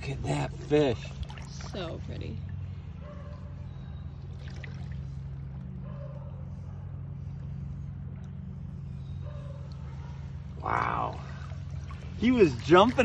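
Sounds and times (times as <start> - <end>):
river water flowing: 10.9 - 13.0.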